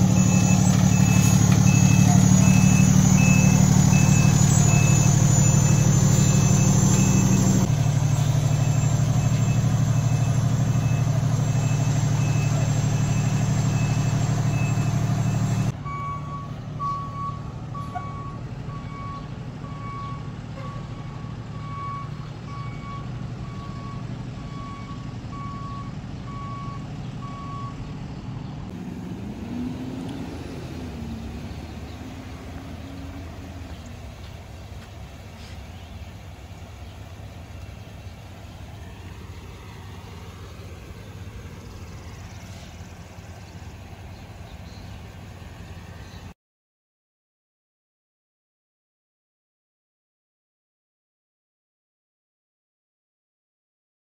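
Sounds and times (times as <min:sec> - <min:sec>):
high electronic beep: 0:00.0 - 0:17.4
lower-pitched beep: 0:00.0 - 0:27.8
diesel engine running: 0:00.0 - 0:46.3
street noise: 0:00.0 - 0:46.3.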